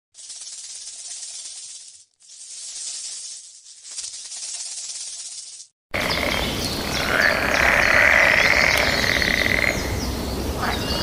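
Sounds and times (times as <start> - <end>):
frog high-pitched held call: 6.0 - 9.9.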